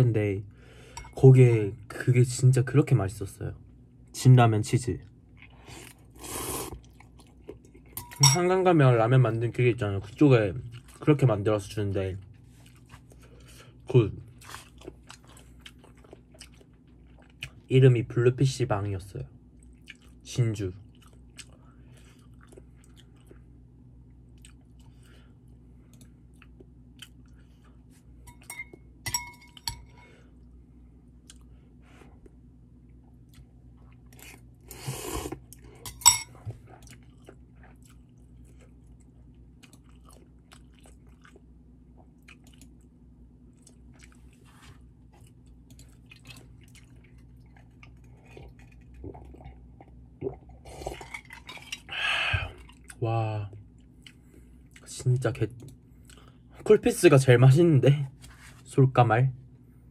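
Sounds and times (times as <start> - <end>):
low steady hum: 0.0 - 59.9
quiet chewing: 10.0 - 11.2, 12.2 - 17.7, 19.5 - 20.2, 20.8 - 28.1, 31.2 - 35.8, 36.4 - 56.5.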